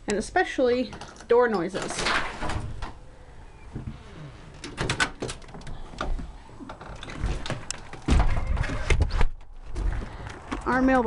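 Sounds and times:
storm door latch clicking: 4.6s - 5.7s
door closing thud: 7.2s - 9.9s.

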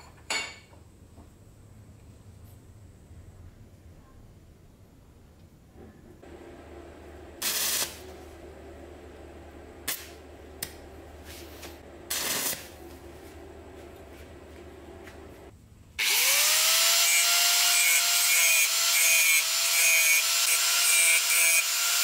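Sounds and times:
arc welding noise: 6.2s - 22.0s
welder hum: 6.2s - 22.0s.

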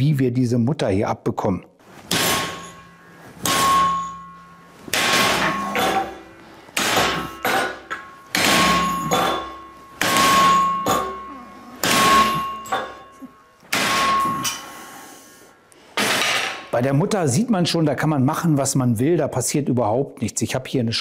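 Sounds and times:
hammer striking bolt: 2.1s - 11.2s
steel plate ringing: 2.1s - 15.0s.

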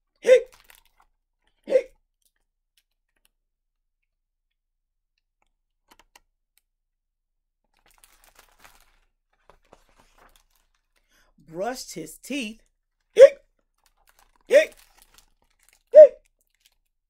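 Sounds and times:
page turning rustle: 7.7s - 11.1s, 13.6s - 16.9s.

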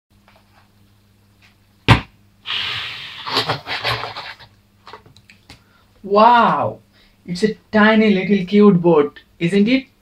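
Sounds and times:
sharp knock: 1.9s - 2.2s
scraping on cardboard: 2.5s - 5.0s.

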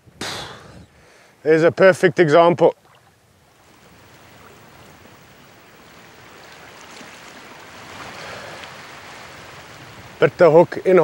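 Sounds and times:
wind: 0.0s - 11.0s
sea water washing: 2.8s - 11.0s.

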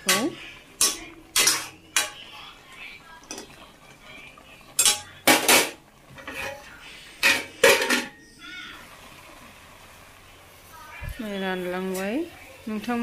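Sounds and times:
metal ladle clanking in wok: 0.0s - 2.2s.

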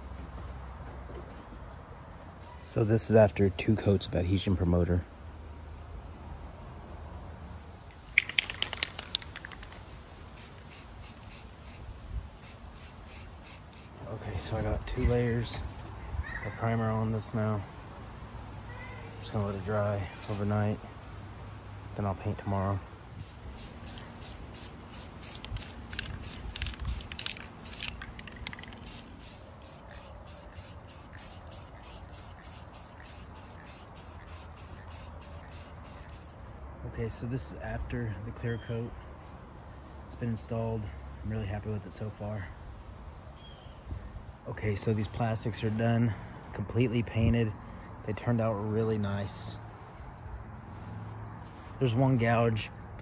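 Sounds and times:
spray can ball rattling: 7.9s - 11.8s, 12.4s - 14.0s, 23.2s - 36.4s
faint spray hisses: 8.6s - 16.0s, 23.1s - 36.6s.

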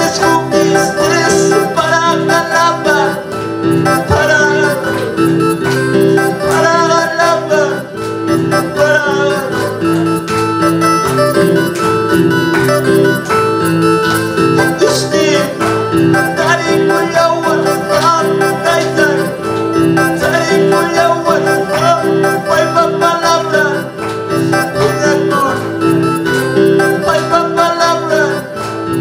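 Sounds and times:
man singing into microphone: 0.0s - 10.2s, 14.6s - 25.9s, 26.7s - 29.0s
electronic keyboard worship music: 0.0s - 29.0s.

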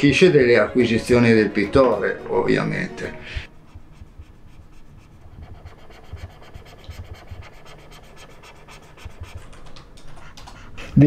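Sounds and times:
stylus scratching and tapping: 3.6s - 11.0s.

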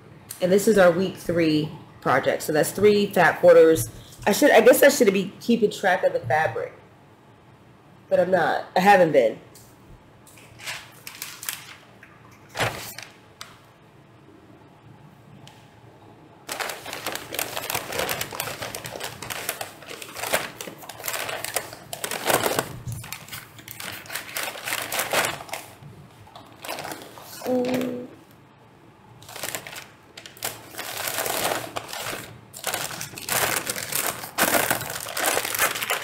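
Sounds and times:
plastic bag crinkling and rustling: 10.3s - 13.5s, 16.5s - 28.1s, 29.2s - 36.0s.

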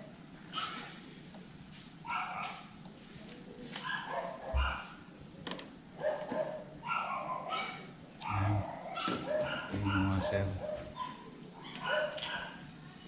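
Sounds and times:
dog barking: 0.5s - 0.9s, 2.0s - 2.7s, 3.8s - 5.0s, 6.0s - 12.6s.

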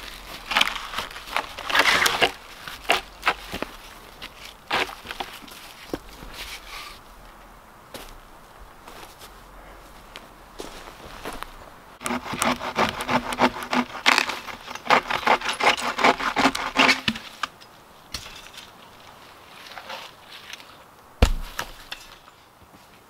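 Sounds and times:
hand saw cutting wood: 12.0s - 17.2s.

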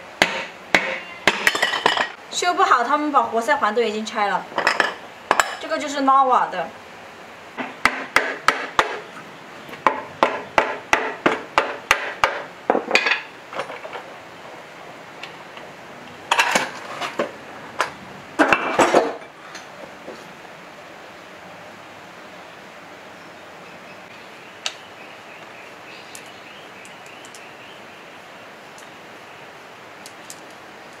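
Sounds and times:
sharp metal knocks: 0.2s - 2.2s, 7.6s - 9.1s, 9.8s - 13.8s.

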